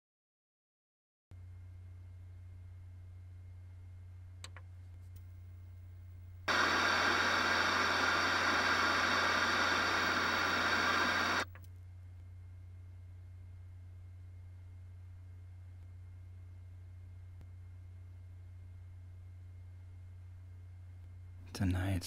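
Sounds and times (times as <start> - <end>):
low steady hum: 1.3 - 22.0
television static hiss: 6.5 - 11.6.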